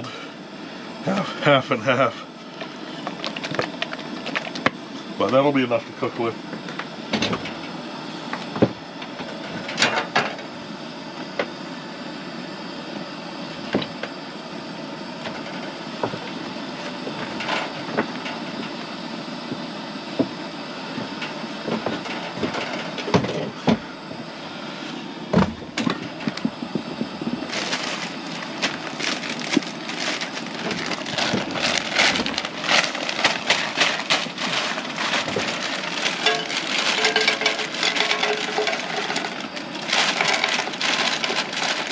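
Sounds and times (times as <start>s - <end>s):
camp stove hissing: 10.5s - 40.6s
utensils clicking and knocking: 32.0s - 39.4s.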